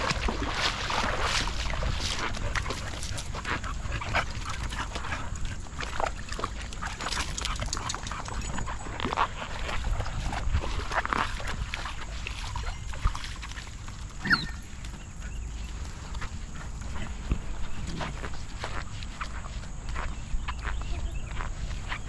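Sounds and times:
dogs splashing through water: 0.0 - 22.0
dog whining: 14.2 - 14.6.

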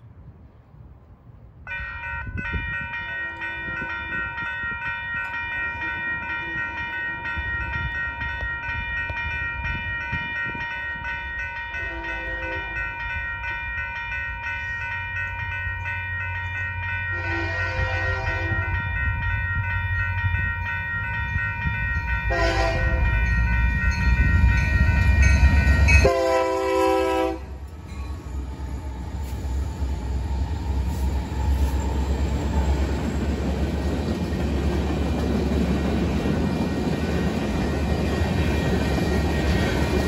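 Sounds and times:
train wheels rumbling on rails: 1.6 - 40.0
train horn blasts: 1.7 - 4.2, 11.7 - 12.9, 17.1 - 18.9, 22.3 - 23.3, 25.2 - 27.6.

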